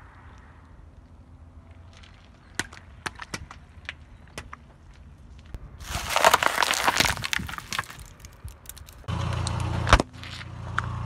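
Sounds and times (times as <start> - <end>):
tyre crushing brittle objects: 5.8 - 9.1.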